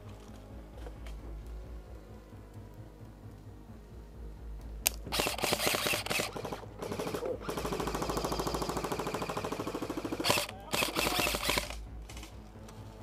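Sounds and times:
airsoft rifle firing bursts: 0:05.0 - 0:12.3.

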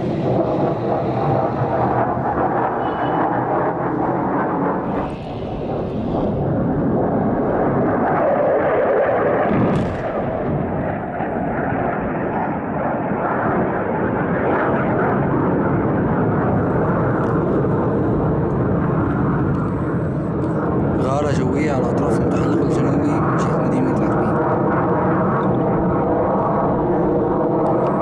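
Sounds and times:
bomb blast roar: 0:00.0 - 0:28.0
warplane: 0:00.0 - 0:28.0
sharp crack: 0:09.0 - 0:12.0.

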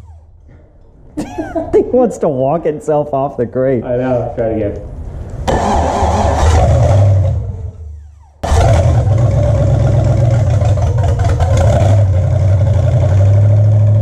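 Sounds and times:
v eight engine running: 0:00.0 - 0:01.2, 0:05.5 - 0:14.0.

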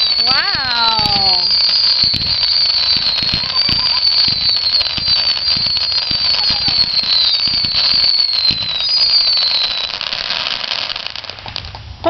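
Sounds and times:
firework crackling: 0:00.0 - 0:12.0
firework whistling: 0:00.0 - 0:12.0.

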